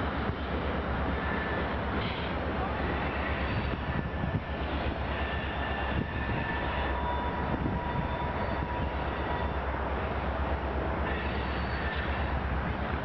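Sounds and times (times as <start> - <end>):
wind rushing over microphone: 3.0 - 9.0.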